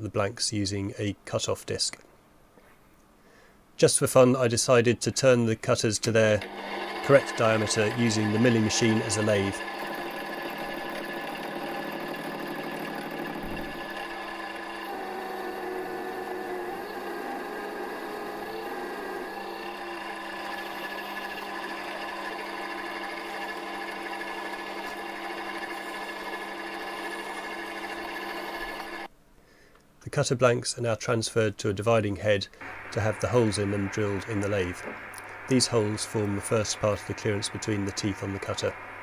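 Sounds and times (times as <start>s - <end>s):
milling machine whine: 6.4s - 29.1s, 32.6s - 39.0s.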